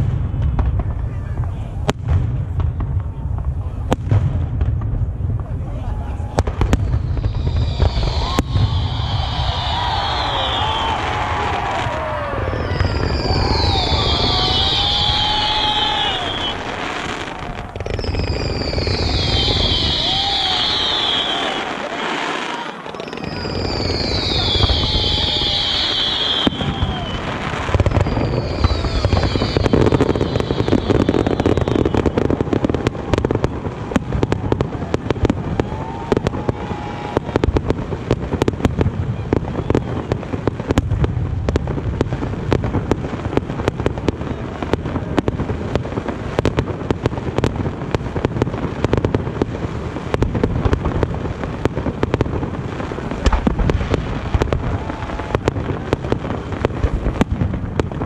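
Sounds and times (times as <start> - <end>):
fireworks booming: 0.0 - 58.0
fireworks crackling: 0.0 - 58.0
falling whistle: 6.8 - 32.3.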